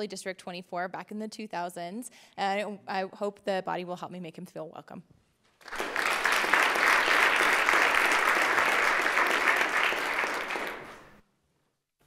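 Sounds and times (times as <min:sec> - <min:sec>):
people applauding: 0:05.6 - 0:11.2.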